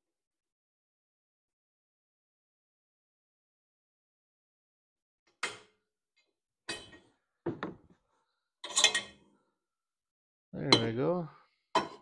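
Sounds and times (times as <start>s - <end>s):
wrench clinking on metal: 8.6s - 9.1s.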